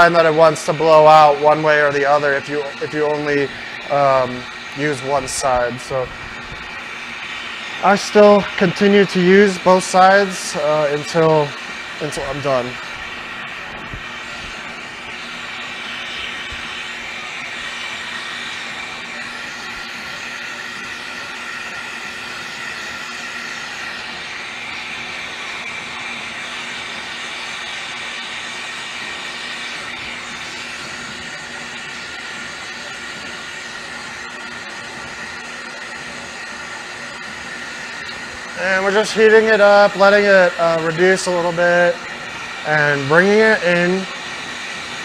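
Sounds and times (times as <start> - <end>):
glassblowing torch flames hissing: 0.0 - 45.0.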